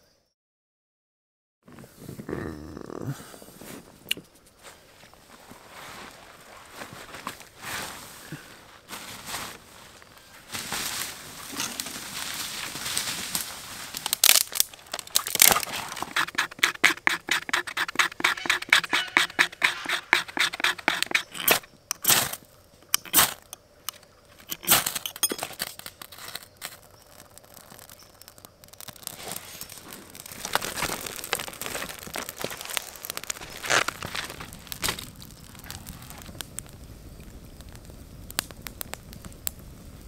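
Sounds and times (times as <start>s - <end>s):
kindling crackling: 1.8s - 40.0s
ferro rod scraping: 14.9s - 23.6s, 24.4s - 36.3s.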